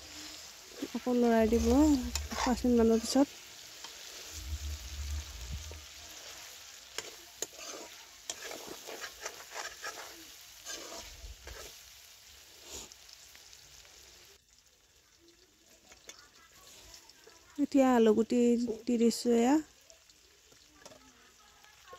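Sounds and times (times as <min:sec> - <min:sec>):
spatula scraping pan: 0:00.0 - 0:11.9
chicken sizzling in oil: 0:00.0 - 0:21.9.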